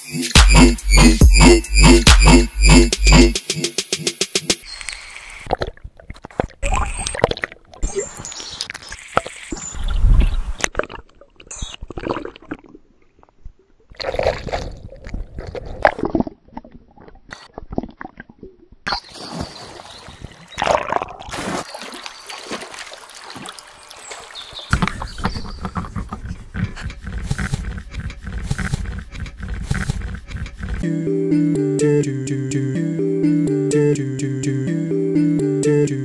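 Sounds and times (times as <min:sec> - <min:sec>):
water splashing and sloshing: 0:04.7 - 0:30.8.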